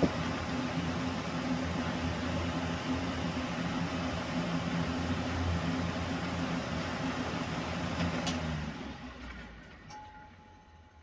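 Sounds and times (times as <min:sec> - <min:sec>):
air rushing from fan blades: 0:00.0 - 0:09.8
fan motor hum: 0:00.0 - 0:11.0.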